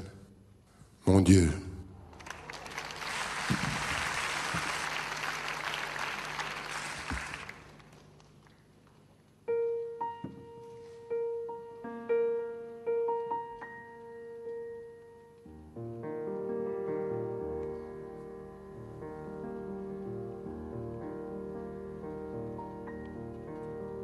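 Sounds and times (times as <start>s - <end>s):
slow grand piano: 1.9s - 24.0s
audience applauding: 2.0s - 9.0s.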